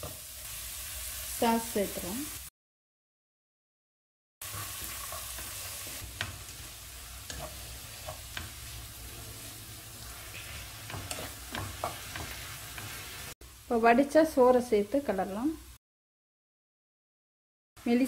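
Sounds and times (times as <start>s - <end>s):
vegetables sizzling in a pan: 0.0s - 2.5s, 4.4s - 15.8s, 17.8s - 18.0s
spatula knocking and scraping pan: 4.4s - 13.4s.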